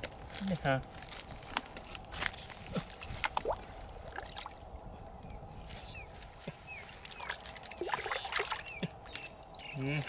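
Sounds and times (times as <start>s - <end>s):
water splashing in puddle: 7.0s - 10.0s.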